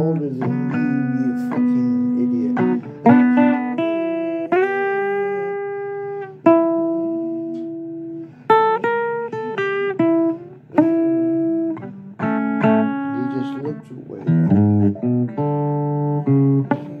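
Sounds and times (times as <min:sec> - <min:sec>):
blues guitar playing: 0:00.0 - 0:17.0.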